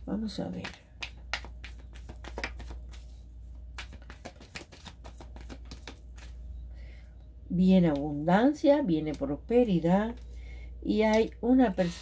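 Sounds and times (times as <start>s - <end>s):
low steady hum: 0.0s - 12.0s
cards shuffled and laid down: 0.6s - 3.1s, 3.8s - 6.4s.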